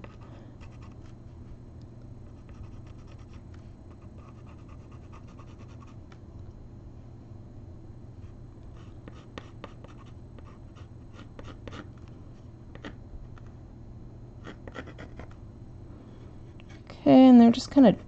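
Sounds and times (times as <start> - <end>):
low steady hum: 0.0 - 18.0
pencil scratching on wood: 8.8 - 11.9, 14.4 - 15.4.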